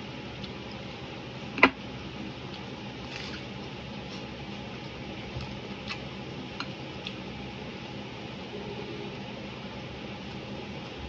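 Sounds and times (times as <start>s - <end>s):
person chewing: 2.5s - 7.2s.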